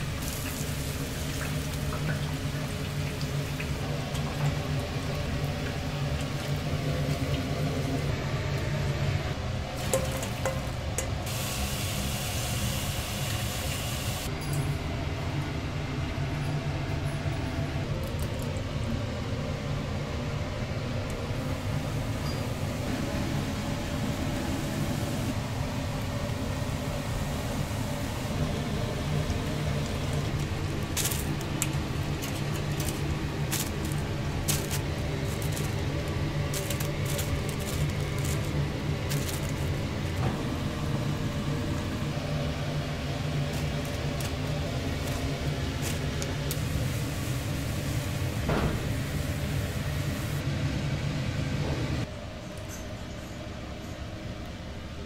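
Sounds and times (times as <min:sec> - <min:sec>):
low machine hum: 0:00.0 - 0:55.0
low mechanical rumble: 0:00.0 - 0:55.0
utensils and dishes clinking: 0:09.8 - 0:11.2.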